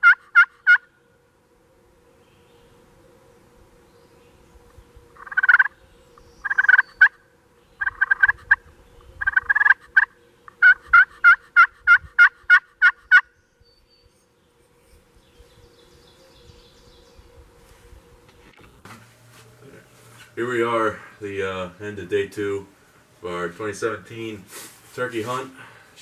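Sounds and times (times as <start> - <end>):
wild turkeys calling: 0.0 - 0.9, 5.2 - 5.8, 6.4 - 7.2, 7.8 - 13.3.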